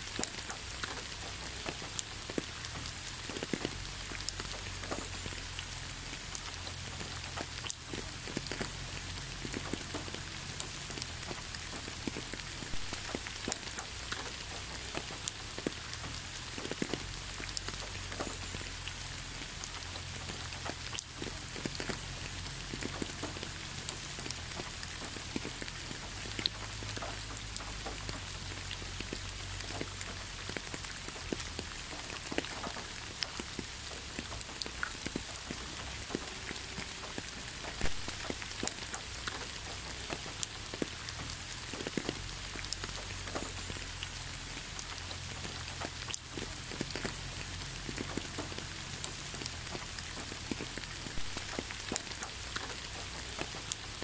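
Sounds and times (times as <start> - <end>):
waterfall splashing: 51.1 - 52.9.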